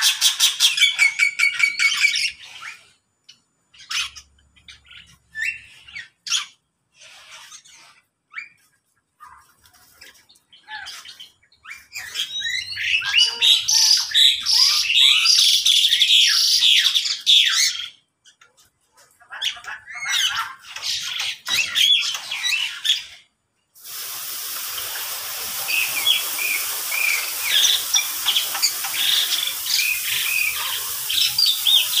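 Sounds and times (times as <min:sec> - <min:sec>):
small birds chirping and chattering: 0:00.0 - 0:32.0
steady hiss: 0:23.8 - 0:32.0.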